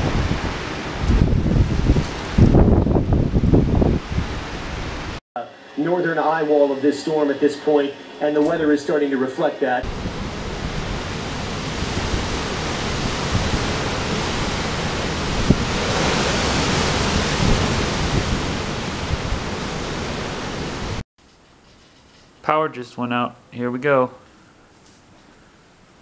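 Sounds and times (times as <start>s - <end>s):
driving rain: 0.0s - 5.2s, 9.8s - 21.0s
hurricane wind: 0.0s - 5.2s, 5.8s - 21.0s.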